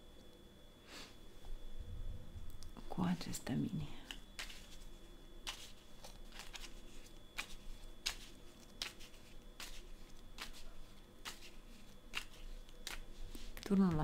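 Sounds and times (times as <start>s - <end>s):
cards being shuffled: 4.1s - 13.5s.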